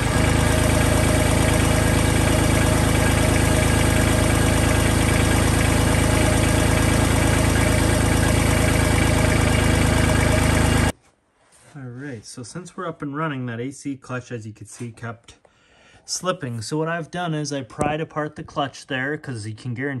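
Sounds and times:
tractor diesel engine idling: 0.0s - 10.9s.

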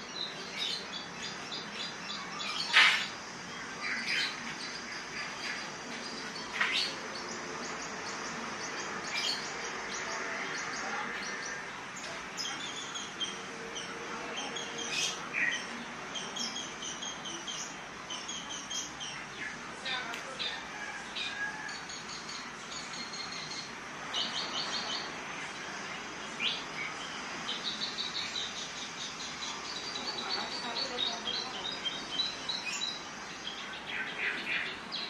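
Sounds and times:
faint bird chirping: 0.0s - 35.0s.

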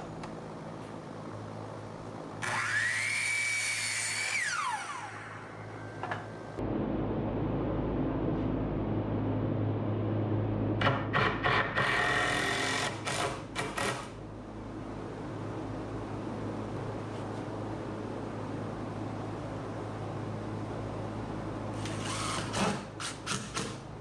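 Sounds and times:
miter saw motor: 2.4s - 5.6s, 21.8s - 22.8s.

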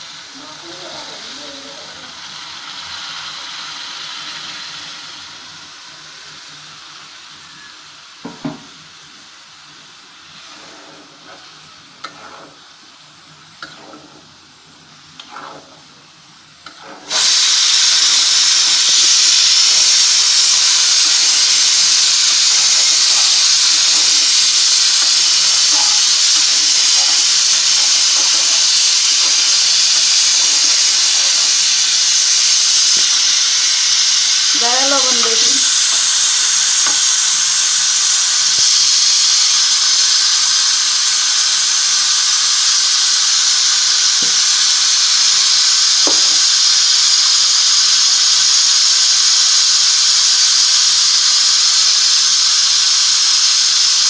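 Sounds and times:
loud hiss of sizzling and steam: 0.0s - 54.0s
curry bubbling and sizzling: 10.3s - 17.1s.

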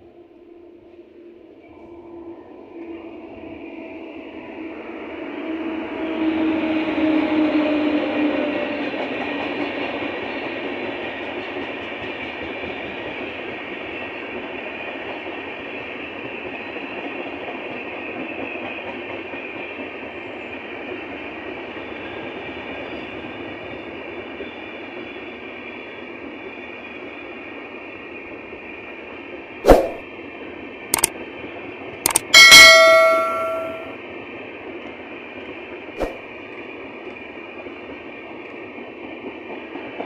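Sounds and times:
electric locomotive hum passing: 0.0s - 29.6s
train wheels running on rails: 2.6s - 29.6s, 30.2s - 40.0s.

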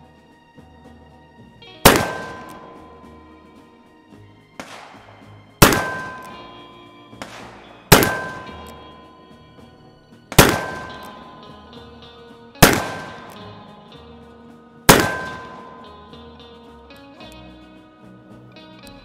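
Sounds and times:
revolver shots: 1.8s - 2.6s, 5.6s - 6.4s, 7.2s - 8.8s, 10.4s - 11.4s, 12.6s - 13.4s, 14.9s - 15.8s
steel target ringing: 5.6s - 6.7s, 7.8s - 12.0s.

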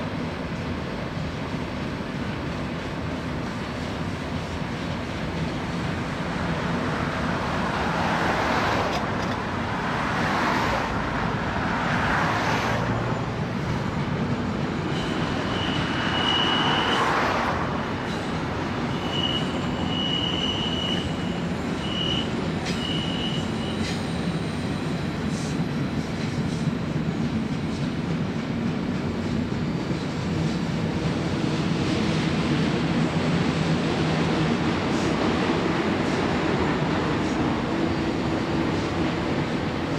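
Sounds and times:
freight train cars rattling: 13.0s - 39.9s
high wheel squeal: 14.4s - 25.6s.

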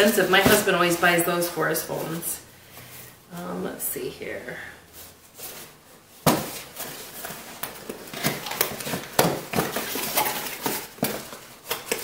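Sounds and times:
cardboard box opening: 6.3s - 12.0s
packaging rustling and clicks: 6.3s - 12.0s.

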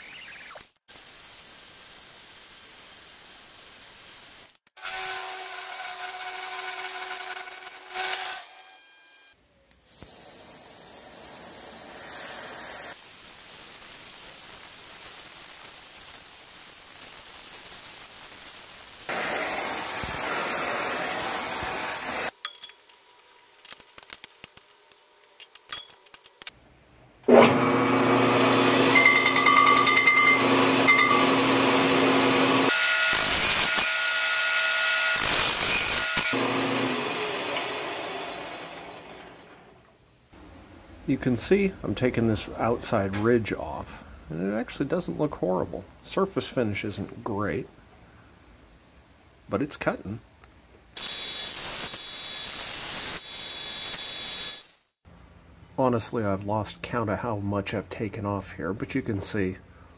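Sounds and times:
brazing torch hissing: 9.8s - 22.3s
milling machine cutting steel: 27.3s - 39.6s
lathe cutting ringing brake drum: 28.6s - 32.0s.

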